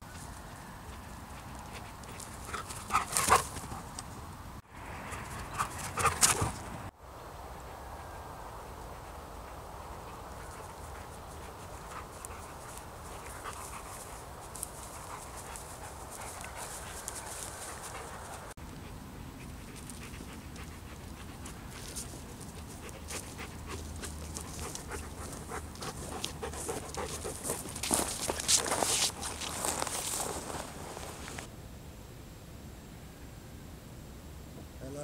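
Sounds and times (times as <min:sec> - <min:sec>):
dog panting: 0:01.3 - 0:03.9, 0:05.4 - 0:06.6, 0:08.7 - 0:18.5, 0:19.3 - 0:31.3
footsteps crunching on frosty grass: 0:10.3 - 0:18.5, 0:21.6 - 0:31.5.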